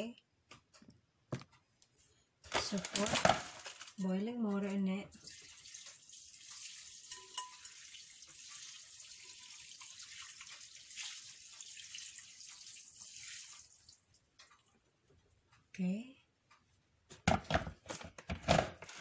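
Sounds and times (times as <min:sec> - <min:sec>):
boiling water pouring: 0:05.1 - 0:14.3.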